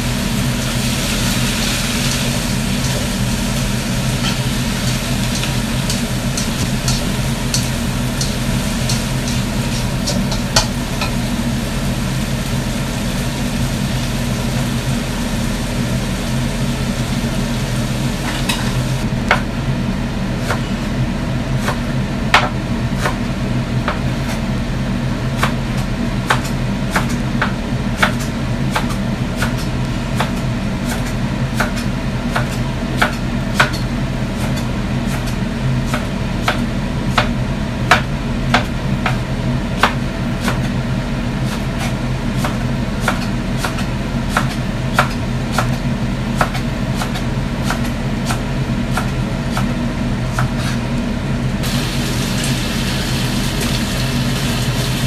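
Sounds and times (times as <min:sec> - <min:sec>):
low hum: 0:00.0 - 0:13.4
spatula scraping a wok: 0:00.7 - 0:11.7.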